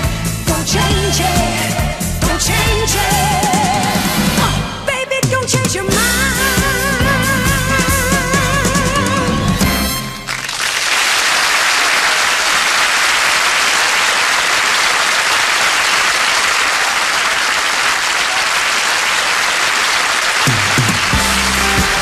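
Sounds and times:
band playing: 0.0s - 10.4s, 20.4s - 22.0s
studio audience applauding: 10.2s - 22.0s.

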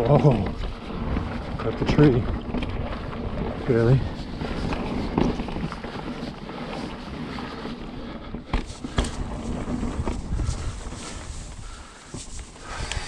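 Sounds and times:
bike rattle: 0.0s - 13.0s
bike tyres on dirt trail: 0.0s - 13.0s
wind on microphone: 8.7s - 13.0s.

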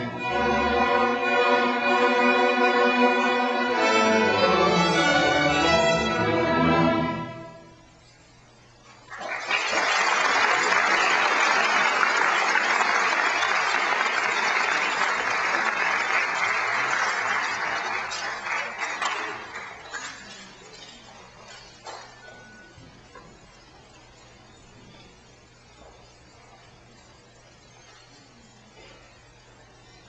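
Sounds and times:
audience applause: 9.1s - 20.2s.

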